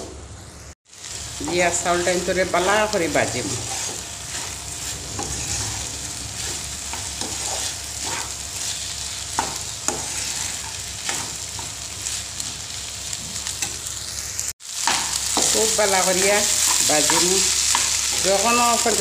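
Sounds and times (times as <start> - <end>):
rice sizzling in a pan: 0.4 - 19.0
metal spatula scraping a pan: 1.4 - 11.8.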